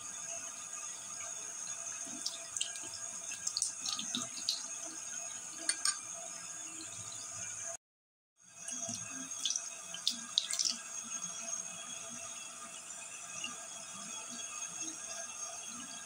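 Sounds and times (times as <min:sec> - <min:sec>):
tap water running into sink: 0:02.0 - 0:07.5, 0:08.7 - 0:11.3.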